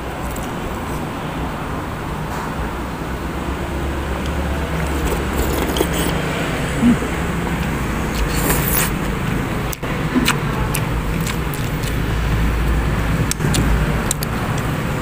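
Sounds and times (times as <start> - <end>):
low rumbling background noise: 0.0 - 15.0
spoon scraping ceramic bowl: 4.8 - 6.3, 8.1 - 9.0.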